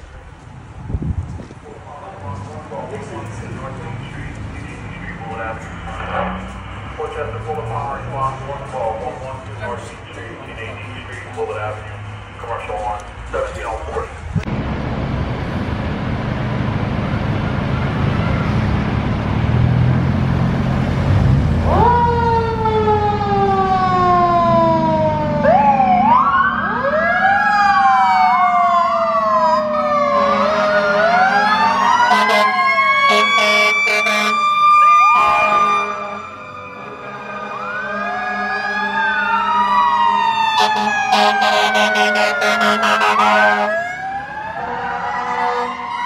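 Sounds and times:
heavy diesel engine rumble: 0.0s - 25.6s
fire truck sirens: 1.9s - 46.0s.

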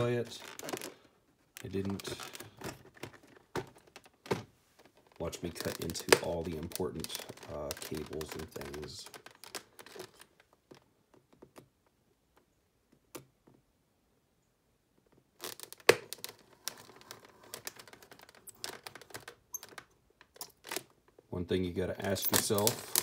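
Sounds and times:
plastic crinkling and cracking: 0.0s - 10.8s, 15.4s - 21.2s, 22.2s - 23.0s.

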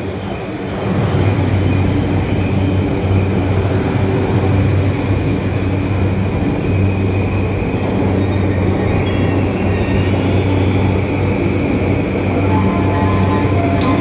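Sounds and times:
electric train running: 0.0s - 14.0s.

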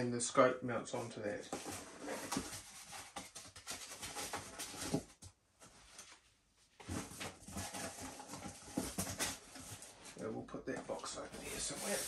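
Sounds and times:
cardboard box rustling and scraping: 1.5s - 5.2s, 6.8s - 10.0s, 11.3s - 12.0s.

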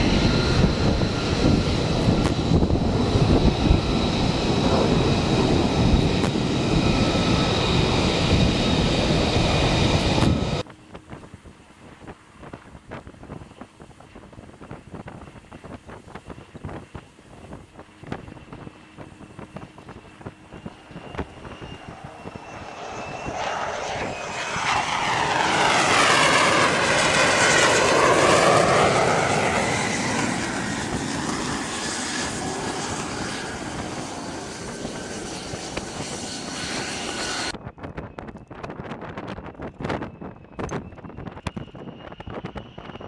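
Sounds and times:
jet engine whine and rush: 0.0s - 43.0s.

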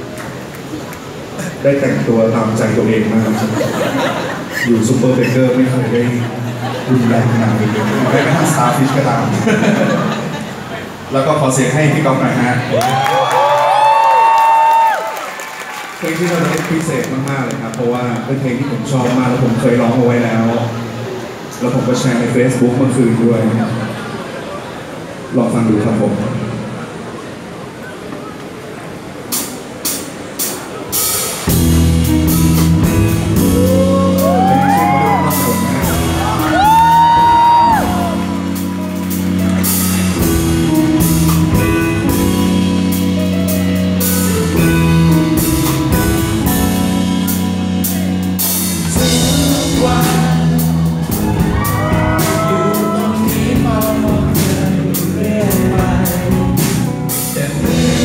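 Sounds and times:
live band with guitars: 0.0s - 25.5s, 26.1s - 58.0s
person singing: 48.4s - 58.0s.

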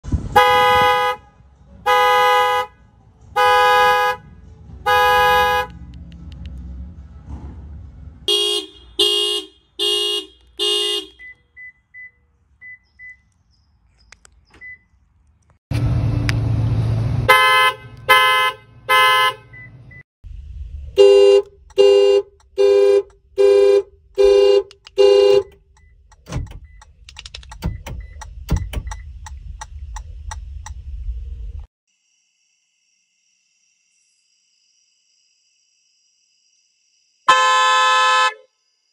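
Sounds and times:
car alarm horn blasts: 0.3s - 2.8s, 3.4s - 4.3s, 4.9s - 5.8s, 8.3s - 11.5s, 17.3s - 19.7s, 20.9s - 26.8s, 37.3s - 38.4s
scattered clicks: 5.8s - 6.6s, 24.6s - 30.8s
low rumbling noise: 20.2s - 21.8s, 26.6s - 31.7s.

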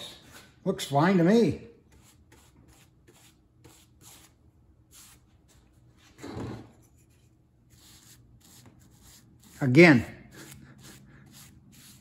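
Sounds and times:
paintbrush strokes on wood: 6.9s - 9.8s.

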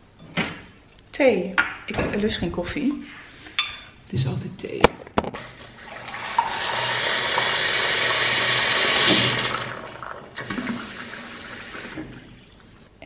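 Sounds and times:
water pouring into mug: 5.7s - 12.3s.

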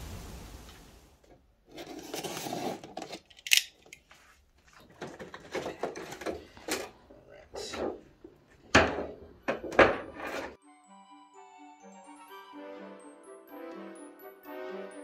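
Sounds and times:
wind noise: 0.0s - 1.1s
cardboard and plastic rustling: 1.6s - 7.0s.

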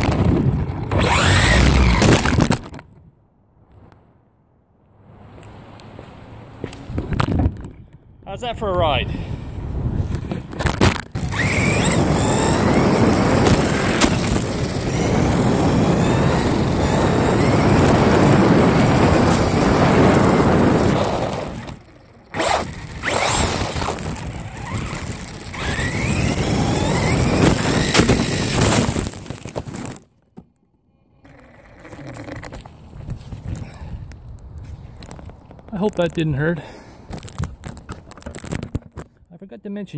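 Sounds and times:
wind over camera: 0.0s - 4.0s, 5.1s - 30.0s, 31.2s - 39.3s
electric motor whine: 0.8s - 2.4s, 11.0s - 30.0s
tyres rumbling on pavement: 9.3s - 30.1s.

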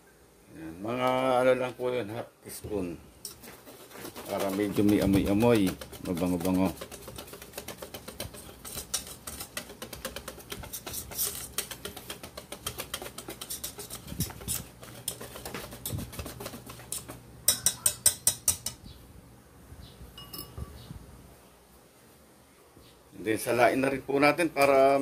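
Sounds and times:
whisk clinking in metal bowl: 4.0s - 18.8s.

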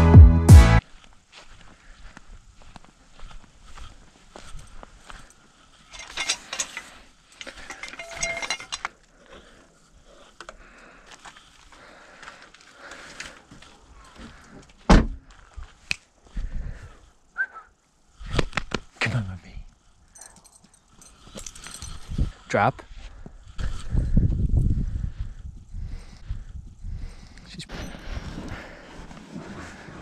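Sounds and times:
knocks clatters and rattles: 5.9s - 8.9s.

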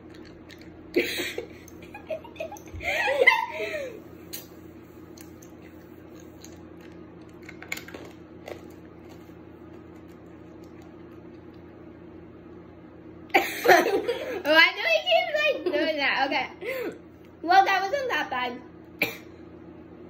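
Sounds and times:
children chewing candy: 0.0s - 1.9s, 4.3s - 11.8s
low room hum: 0.0s - 20.0s.

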